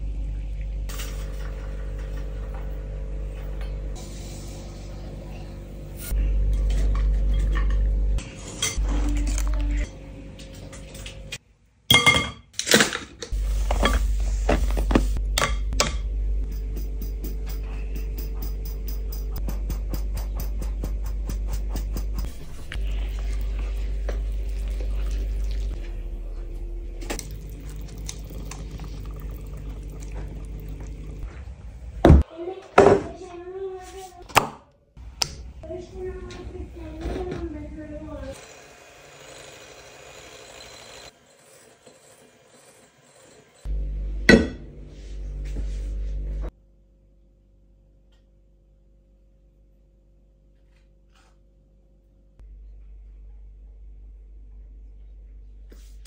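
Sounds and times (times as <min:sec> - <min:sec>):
steady low hum: 0:13.4 - 0:32.2, 0:43.6 - 0:56.0
batter squelching and slopping: 0:22.4 - 0:31.3.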